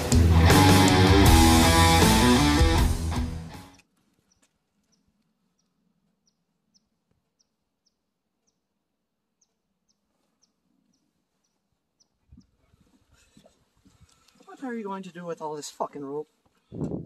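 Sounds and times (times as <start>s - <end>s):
bird chirping: 3.6s - 8.7s, 9.3s - 12.6s.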